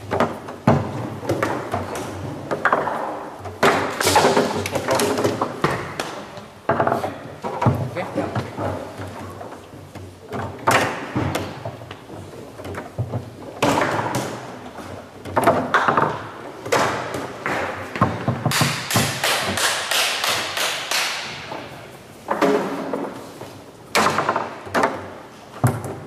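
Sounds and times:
foosball ball knocking: 0.0s - 12.1s, 12.8s - 19.8s.

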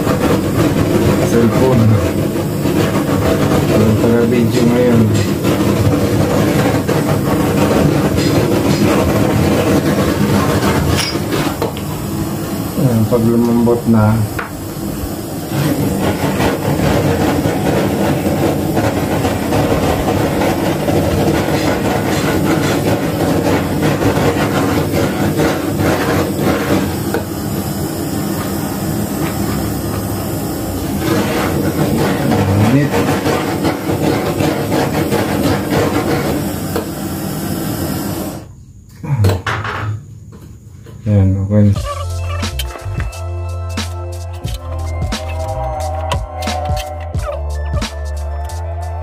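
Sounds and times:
heat gun blowing: 0.0s - 38.5s.

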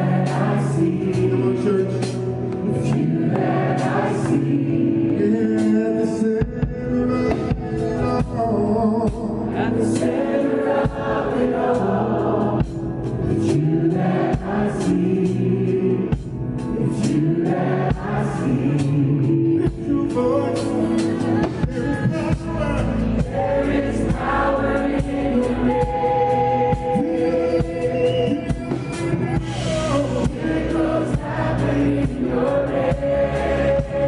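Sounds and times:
man singing into microphone: 0.0s - 3.4s, 4.2s - 10.0s, 16.7s - 23.3s, 25.2s - 29.0s
choir singing: 0.0s - 6.2s, 9.0s - 34.0s.

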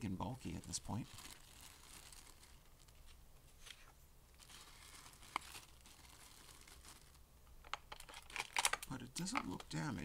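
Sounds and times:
plastic bag crinkling: 0.4s - 3.2s, 4.4s - 7.2s.

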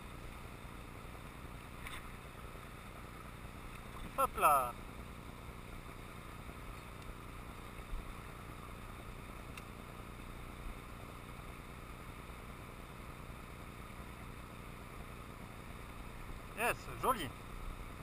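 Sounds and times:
faint ticks: 6.6s - 8.0s, 9.0s - 9.8s.

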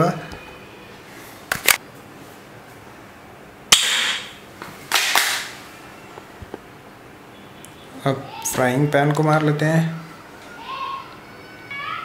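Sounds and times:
toy pistol shots: 3.7s - 5.5s.

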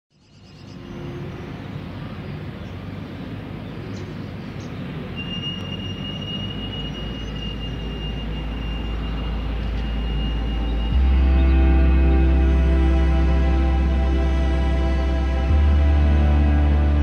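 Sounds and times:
low drone: 0.4s - 17.0s
wash of ambient noise: 0.4s - 17.0s
steady high tone: 5.6s - 17.0s.

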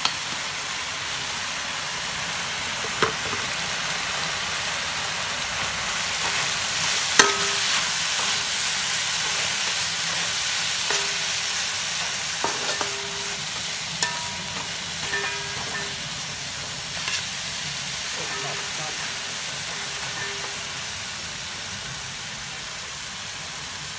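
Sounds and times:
food sizzling in a wok: 0.0s - 23.9s
spatula stirring: 7.0s - 17.4s
spatula knocking on wok: 7.2s - 7.8s, 10.9s - 11.4s, 12.4s - 16.1s, 19.7s - 20.6s.

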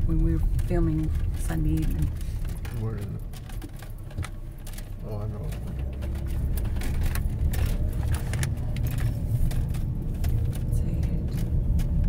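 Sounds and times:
small clicks and rattles: 0.0s - 12.0s
tyre and engine rumble: 0.0s - 12.0s.

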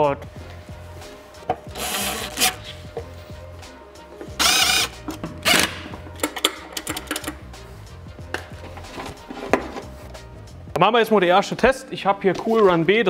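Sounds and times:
cordless drill driving a screw: 1.7s - 2.6s, 4.4s - 5.8s.

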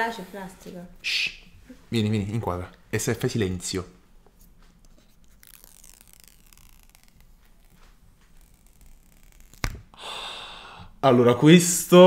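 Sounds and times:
protective wrap peeling off: 4.5s - 10.0s.

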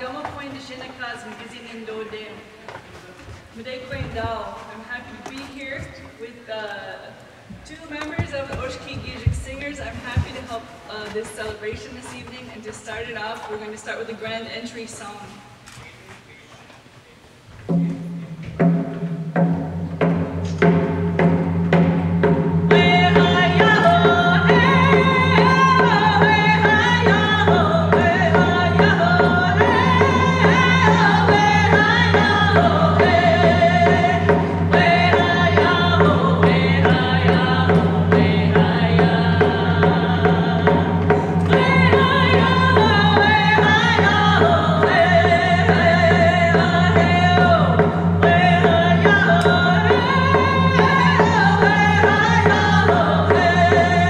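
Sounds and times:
frame hand drums beating: 7.6s - 13.2s, 17.6s - 54.0s
women singing together: 22.7s - 54.0s.

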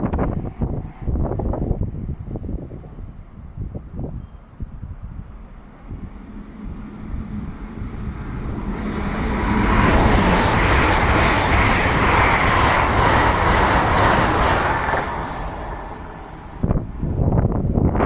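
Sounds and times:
passenger train passing: 0.0s - 18.0s
wheels on rails: 5.6s - 16.8s.

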